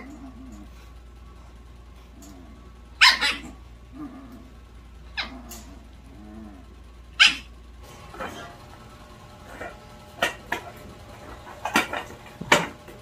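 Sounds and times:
small dog yipping: 3.0s - 3.6s, 7.2s - 7.5s
dog whimpering: 5.2s - 7.5s.

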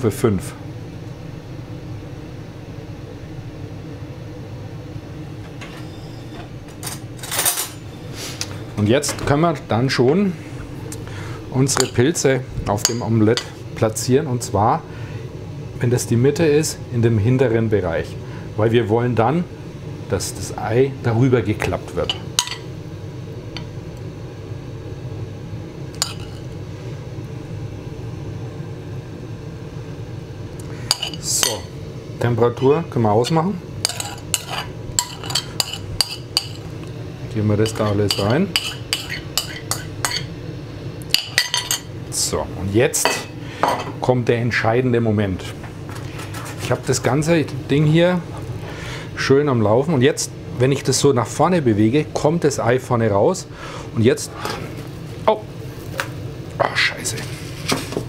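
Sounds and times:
induction hob humming: 0.0s - 58.0s
metal spoon clinking on pan: 33.8s - 36.6s, 37.7s - 40.3s, 41.1s - 41.9s
rustling scraping noises: 45.9s - 46.8s, 57.1s - 58.0s.

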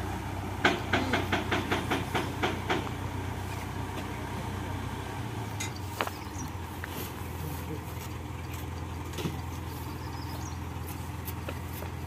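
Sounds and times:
diesel engine idling: 0.0s - 12.0s.

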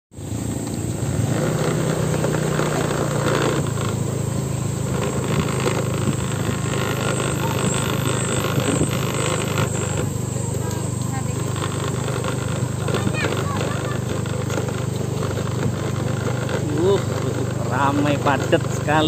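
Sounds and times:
engine running low hum: 0.1s - 19.0s
traffic noise: 0.1s - 19.0s.

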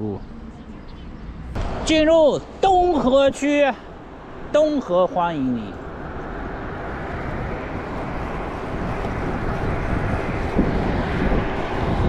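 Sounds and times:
road noise: 0.0s - 12.0s
wind rush on microphone: 3.9s - 12.0s.

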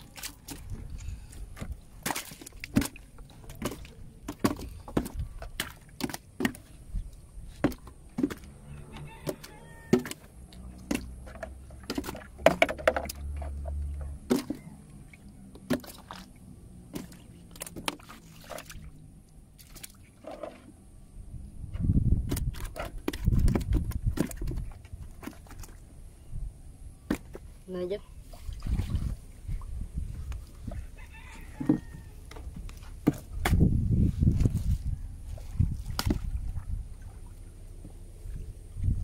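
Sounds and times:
water sloshing: 0.0s - 20.9s, 22.2s - 26.1s, 27.0s - 39.0s
rough low rumble: 25.8s - 39.0s.

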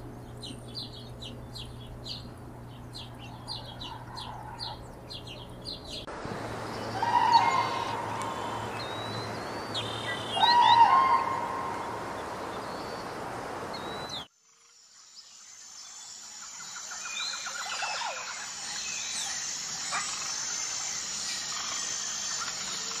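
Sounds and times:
bird chirps: 0.1s - 6.1s, 6.7s - 13.1s
steady hiss: 11.2s - 14.2s, 15.0s - 23.0s.

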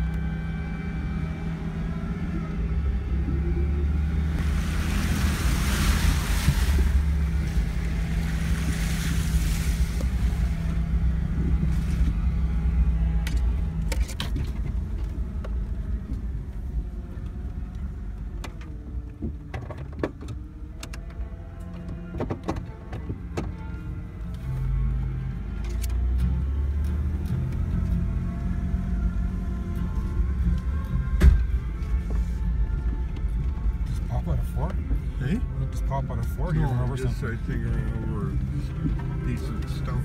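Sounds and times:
vehicle engine rumbling: 0.0s - 40.0s
water splashing under vehicle: 3.3s - 23.8s.

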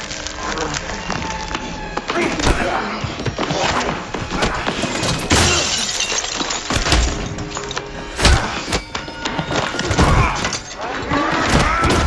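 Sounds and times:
dramatic music: 0.0s - 12.0s
glass shattering: 4.8s - 10.8s.

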